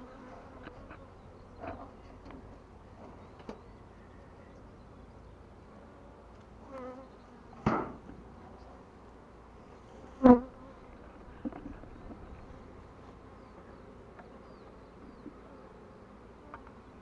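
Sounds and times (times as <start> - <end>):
honeybees buzzing: 0.0 - 2.3, 8.3 - 17.0
knocks of wooden hive parts: 7.6 - 8.2.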